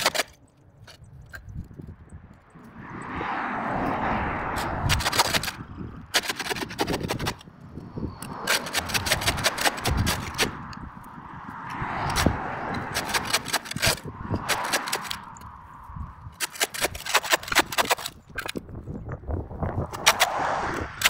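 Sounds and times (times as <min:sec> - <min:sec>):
shovel scraping concrete: 0:08.0 - 0:10.6, 0:12.1 - 0:15.4, 0:16.4 - 0:18.1.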